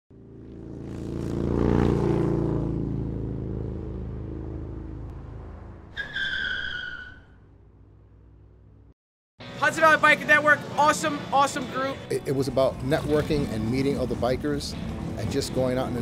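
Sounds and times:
motorcycle engine passing by: 0:00.1 - 0:05.9
short high squeal: 0:06.0 - 0:07.5.

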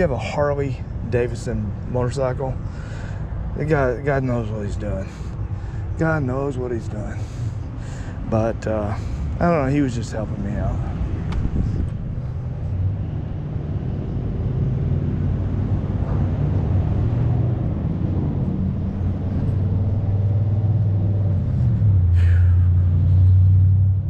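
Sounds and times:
vehicle engine idling: 0:17.6 - 0:24.0.

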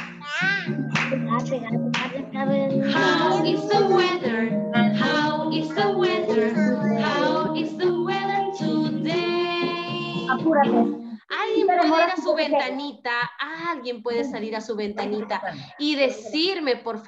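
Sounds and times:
instrumental backing: 0:00.0 - 0:12.6
woman and children singing: 0:02.2 - 0:12.3.

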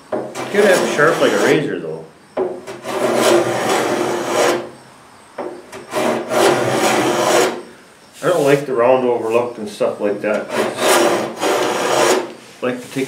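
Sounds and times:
hand plane shaving wood: 0:00.3 - 0:01.7, 0:02.7 - 0:04.7, 0:05.8 - 0:07.6, 0:10.3 - 0:12.4.

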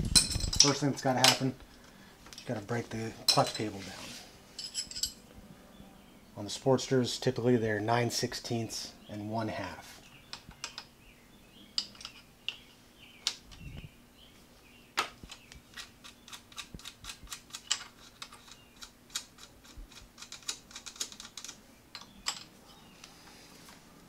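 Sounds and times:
wrenches clicking on metal: 0:15.8 - 0:22.5.

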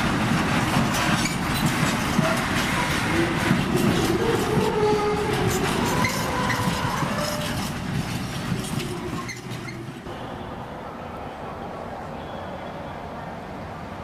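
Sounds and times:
train wheels clattering on rails: 0:00.0 - 0:10.2.

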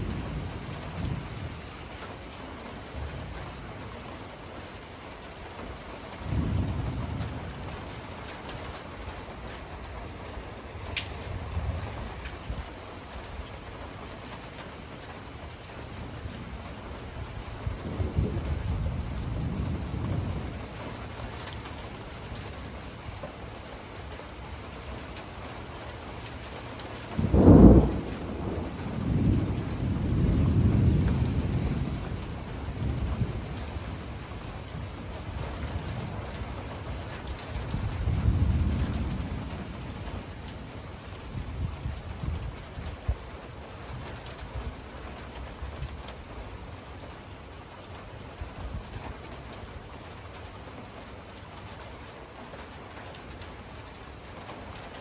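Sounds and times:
thunder rumbling: 0:00.0 - 0:02.1, 0:06.1 - 0:08.8, 0:15.2 - 0:23.4, 0:27.0 - 0:43.3
steady rain: 0:00.0 - 0:55.0
loud thunderclap: 0:06.3 - 0:07.5, 0:17.6 - 0:20.7, 0:27.2 - 0:33.6, 0:37.7 - 0:40.4.

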